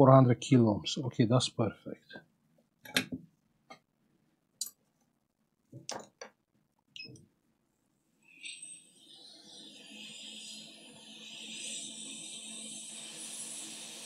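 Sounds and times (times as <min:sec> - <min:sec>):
steady hiss: 0:08.3 - 0:14.0.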